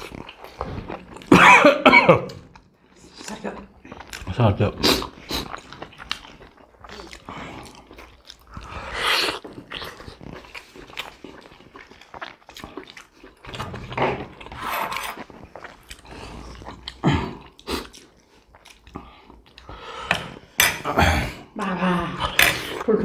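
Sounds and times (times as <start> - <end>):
wet chewing and biting: 0.0 - 1.3, 2.4 - 19.8
slurps: 2.9 - 20.5.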